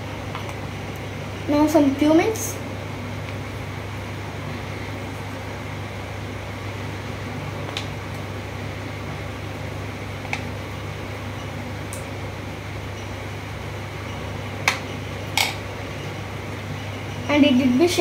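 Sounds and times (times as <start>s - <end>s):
fan humming and hissing: 0.0s - 18.0s.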